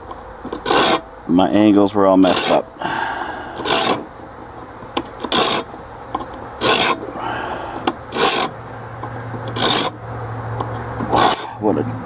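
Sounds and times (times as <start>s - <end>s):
hand file rasping on steel: 0.5s - 1.0s, 2.2s - 2.7s, 3.5s - 4.1s, 5.2s - 5.7s, 6.6s - 7.1s, 7.7s - 8.6s, 9.5s - 10.0s, 11.0s - 11.6s.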